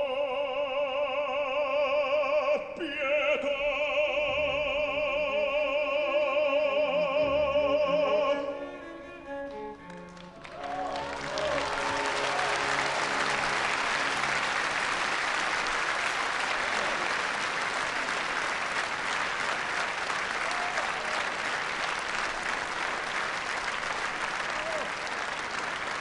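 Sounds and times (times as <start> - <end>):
audience applauding: 9.4 - 26.0
orchestra held chord: 10.6 - 15.2
short calls from audience: 24.3 - 25.2.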